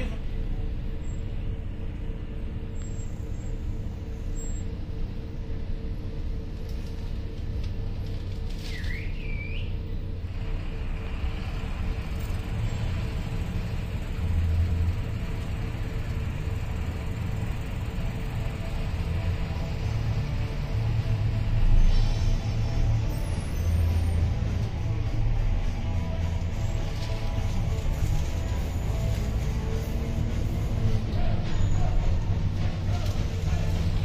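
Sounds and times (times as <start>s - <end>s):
bus engine and road rumble: 0.0s - 34.0s.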